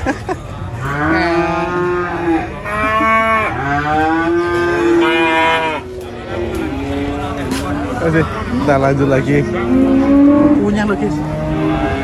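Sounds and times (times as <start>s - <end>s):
cattle mooing: 0.8s - 7.5s, 9.4s - 12.0s.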